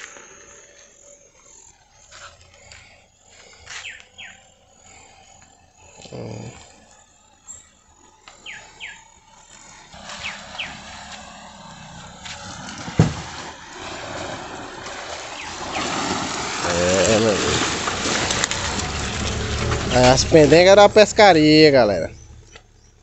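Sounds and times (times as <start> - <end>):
birds whistling: 2.3 - 5.8, 7.4 - 11.1, 15.3 - 16.2, 22.0 - 23.0
tyres splashing through water: 9.9 - 22.8
loud thump: 12.8 - 13.5.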